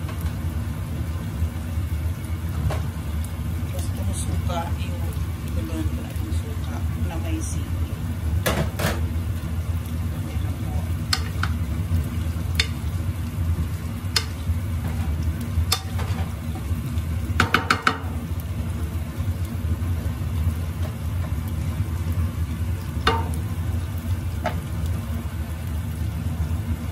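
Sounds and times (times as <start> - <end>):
light frying sizzle: 0.0 - 26.9
spatula clicking against pan: 12.5 - 12.8, 14.1 - 14.4.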